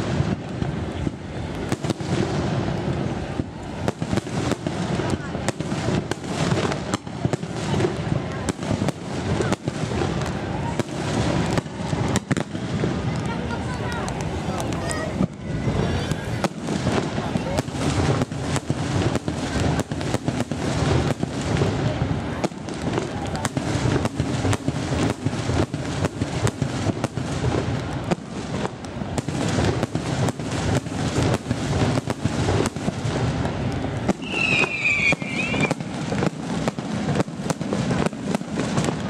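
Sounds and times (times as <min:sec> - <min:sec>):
crackle and rumble of fireworks: 0:00.0 - 0:39.0
firework shells bursting: 0:23.6 - 0:39.0
high firework whistle: 0:34.1 - 0:36.2.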